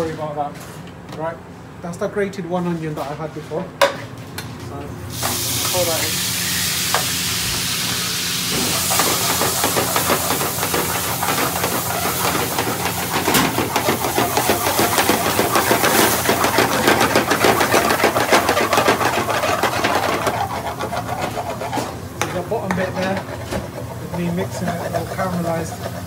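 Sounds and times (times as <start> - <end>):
onion sizzling in oil: 5.1 - 22.2
metal spatula scraping pan: 8.8 - 26.0.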